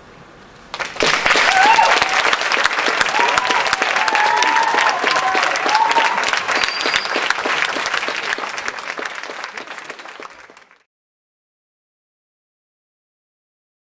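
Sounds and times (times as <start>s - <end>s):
audience applauding: 0.7s - 10.9s.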